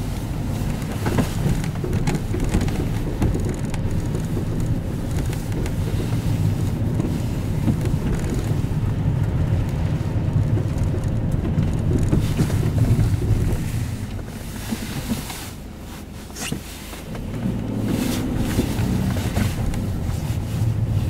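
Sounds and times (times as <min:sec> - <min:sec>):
road noise: 0:00.0 - 0:21.0
van engine rumble: 0:00.0 - 0:21.0.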